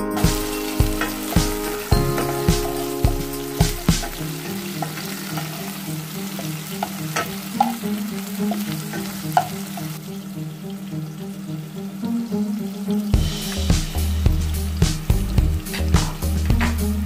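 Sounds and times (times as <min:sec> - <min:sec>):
background music: 0:00.0 - 0:17.0
vegetables sizzling in oil: 0:00.0 - 0:17.0
spatula stirring and scraping pan: 0:00.2 - 0:10.0.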